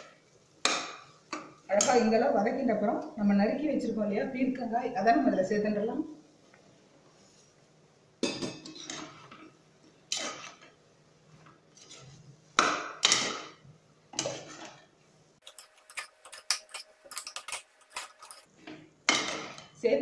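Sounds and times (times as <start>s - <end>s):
metal spoon scraping a pot: 10.1s - 10.7s, 11.7s - 12.3s, 14.2s - 18.5s.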